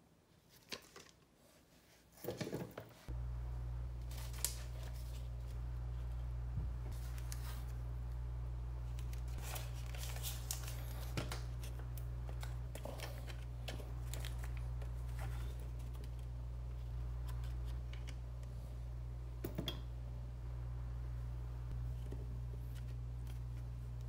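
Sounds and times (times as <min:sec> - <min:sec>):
steady low hum: 0:03.1 - 0:24.0
tape handling taps and rustles: 0:08.9 - 0:16.3.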